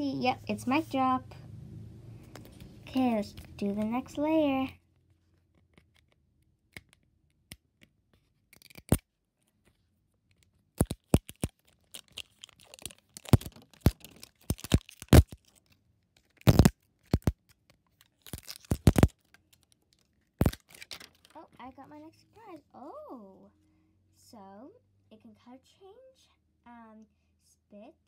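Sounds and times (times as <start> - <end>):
wrapping crackling and ripping: 8.4 - 9.1, 10.7 - 21.6.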